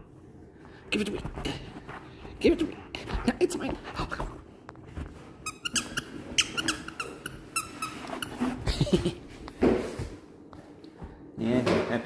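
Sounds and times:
squeaky toy squeaking: 0:05.4 - 0:08.5.

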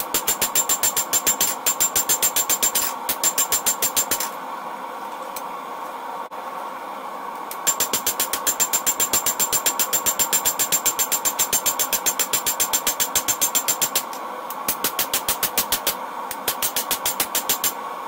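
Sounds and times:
hammer striking steel on anvil: 0:07.7 - 0:14.1.

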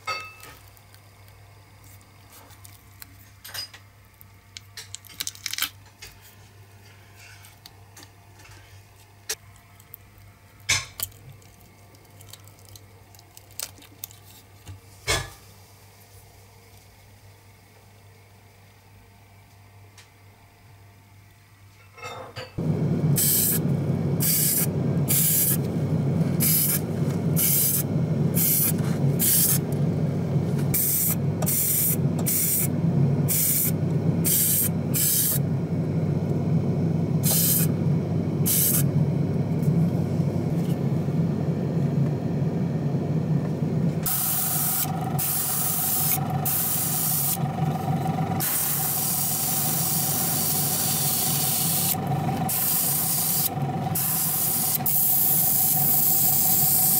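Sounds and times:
spray booth low hum: 0:22.6 - 0:56.9
spray gun hissing bursts: 0:23.0 - 0:29.8, 0:30.7 - 0:35.5, 0:37.2 - 0:37.8, 0:38.4 - 0:39.0, 0:44.0 - 0:56.9.

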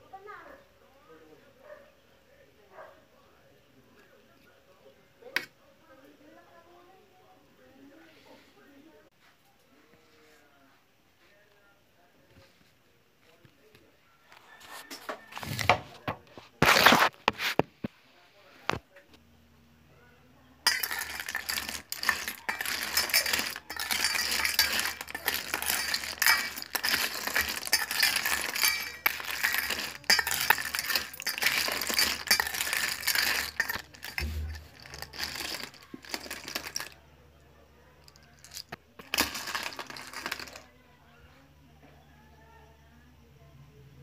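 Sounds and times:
clam shells clattering in metal bowl: 0:20.7 - 0:37.0, 0:38.0 - 0:40.7.

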